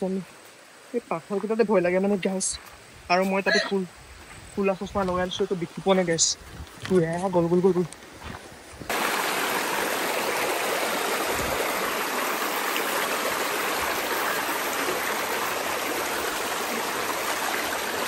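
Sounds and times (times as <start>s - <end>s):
stream rushing over stones: 8.9s - 18.0s.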